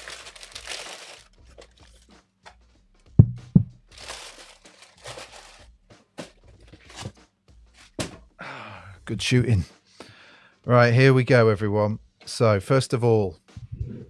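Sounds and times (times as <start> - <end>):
tissue paper rustling: 0.0 - 2.0, 3.9 - 5.7, 6.7 - 7.1
dull thumps: 3.2 - 3.8.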